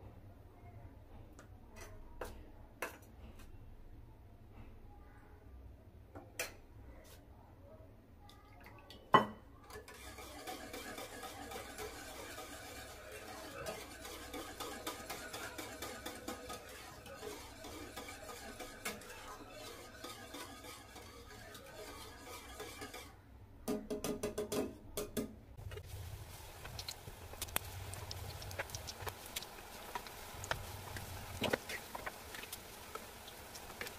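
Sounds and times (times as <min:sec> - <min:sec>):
whisk scraping steel bowl: 0:09.7 - 0:23.2
scattered crackles: 0:25.6 - 0:33.9.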